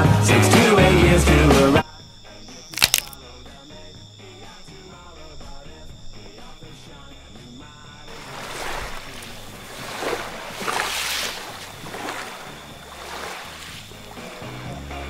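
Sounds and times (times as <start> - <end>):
waves washing onto beach: 8.1 - 14.7.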